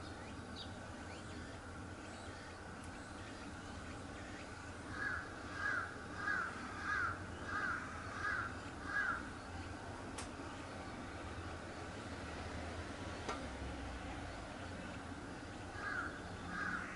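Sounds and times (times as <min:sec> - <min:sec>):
bird calling: 0:00.0 - 0:09.9, 0:14.7 - 0:16.9
low background hum: 0:00.0 - 0:16.9.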